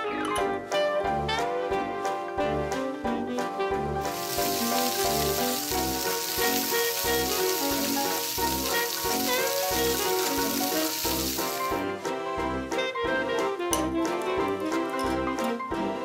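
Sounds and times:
frying sizzle: 0:04.0 - 0:11.8.

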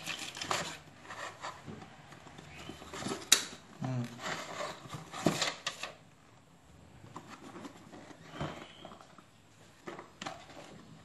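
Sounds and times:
packaging rustling: 0:00.0 - 0:01.5.

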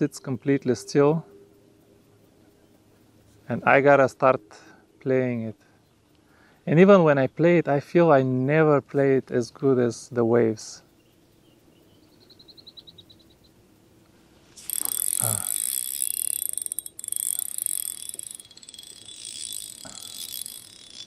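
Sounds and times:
fishing reel whirring and clicking: 0:14.6 - 0:21.0.

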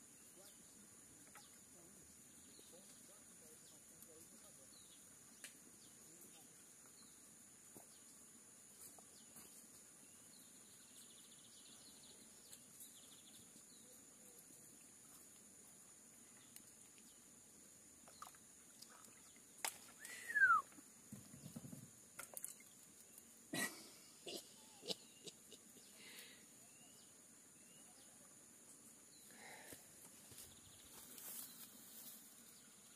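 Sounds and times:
faint bird chirps: 0:18.0 - 0:21.8, 0:24.5 - 0:29.6
whistle gliding down in pitch: 0:20.2 - 0:20.7.

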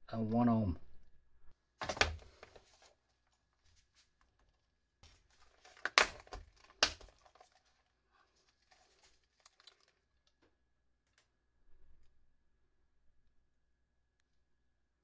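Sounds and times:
plastic box snapping open: 0:01.8 - 0:02.3, 0:05.6 - 0:07.6
small parts rattling and rustling: 0:04.2 - 0:10.4.

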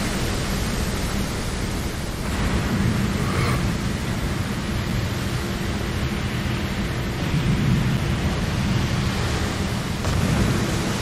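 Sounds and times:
rain-like hiss: 0:00.0 - 0:11.0
thunder rumbling: 0:07.1 - 0:11.0.

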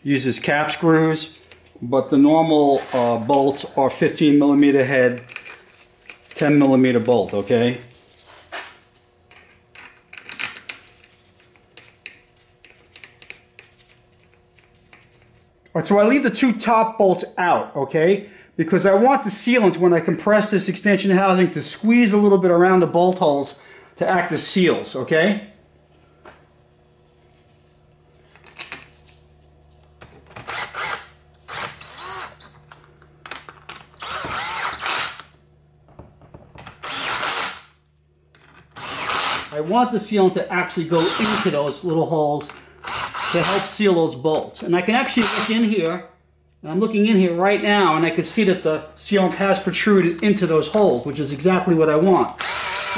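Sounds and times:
cordless drill driving screws: 0:30.4 - 0:32.7, 0:34.0 - 0:35.3, 0:36.8 - 0:37.7, 0:38.8 - 0:39.5, 0:41.0 - 0:41.6, 0:42.8 - 0:43.7, 0:45.2 - 0:45.6, 0:52.4 - 0:52.9.

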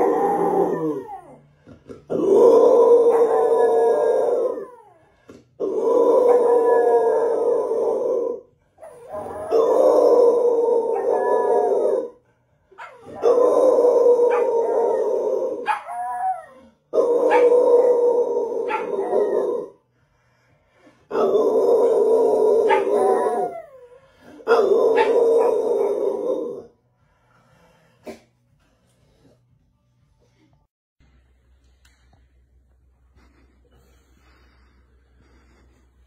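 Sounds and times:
puppy howling high: 0:00.0 - 0:01.4, 0:02.1 - 0:12.2, 0:12.8 - 0:19.8, 0:21.1 - 0:26.7
adult dog howling deeply: 0:00.0 - 0:01.5, 0:02.1 - 0:19.8, 0:21.1 - 0:26.7.

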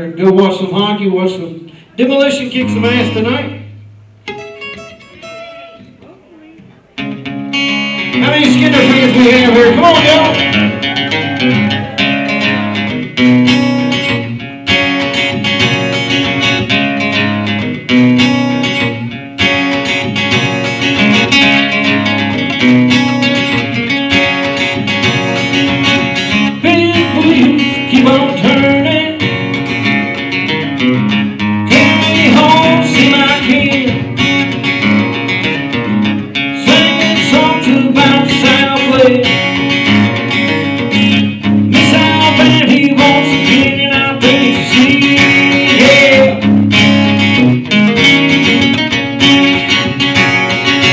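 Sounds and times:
man singing: 0:00.0 - 0:03.7, 0:08.1 - 0:12.4, 0:26.4 - 0:29.4, 0:31.7 - 0:34.2, 0:36.6 - 0:39.6, 0:41.7 - 0:46.5
acoustic guitar strumming: 0:00.0 - 0:50.9.

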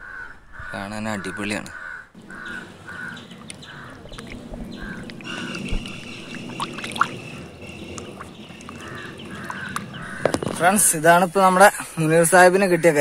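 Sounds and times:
crows cawing: 0:00.0 - 0:10.8, 0:12.4 - 0:13.0
hand splashing through water: 0:05.0 - 0:07.2.

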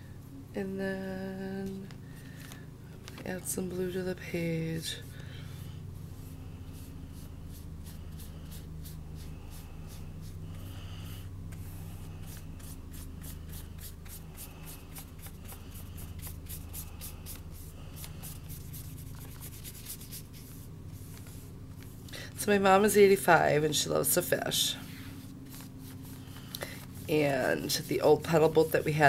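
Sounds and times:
paintbrush scratching on paper: 0:11.6 - 0:22.0, 0:24.7 - 0:29.0.

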